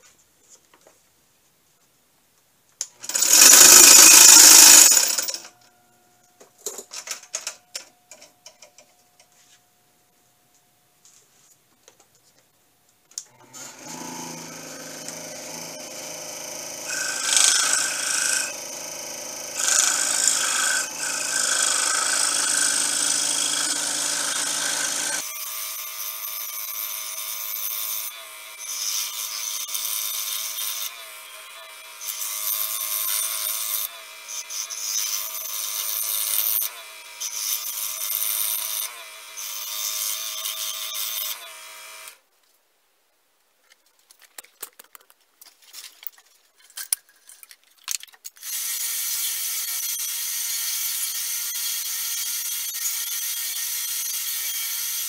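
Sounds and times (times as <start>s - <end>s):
scroll saw cutting wood: 2.9s - 5.5s, 13.2s - 42.2s, 48.4s - 55.0s.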